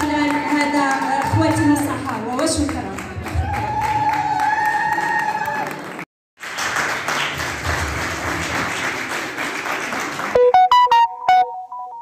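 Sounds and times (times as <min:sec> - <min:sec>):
audience applauding: 0:02.7 - 0:10.8
short electronic beeps: 0:10.4 - 0:12.0.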